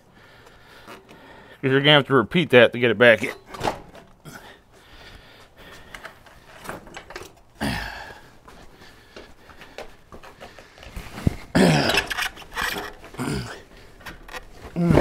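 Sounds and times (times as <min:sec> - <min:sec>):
person grunting: 0:07.6 - 0:08.2, 0:11.5 - 0:12.1, 0:13.2 - 0:13.7, 0:14.8 - 0:15.0
rubber and metal scuffing: 0:08.4 - 0:15.0.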